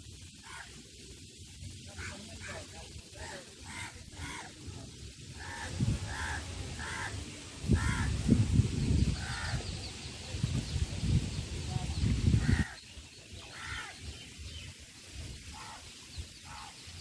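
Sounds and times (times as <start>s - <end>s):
crows cawing: 0.4s - 0.8s, 3.2s - 4.6s, 5.4s - 8.2s, 9.2s - 9.6s, 13.5s - 14.0s, 15.6s - 15.8s, 16.4s - 16.7s.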